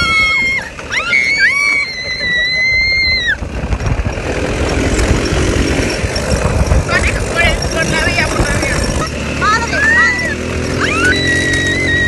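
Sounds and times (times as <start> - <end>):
woman screaming: 0.0 - 3.4, 10.8 - 12.0
wind noise: 0.0 - 9.4
dune buggy engine running: 0.0 - 12.0.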